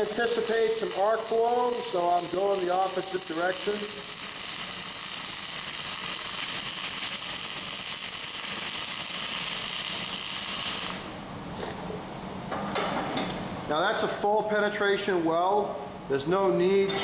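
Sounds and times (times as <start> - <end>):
arc welding hiss: 0.0 - 11.2.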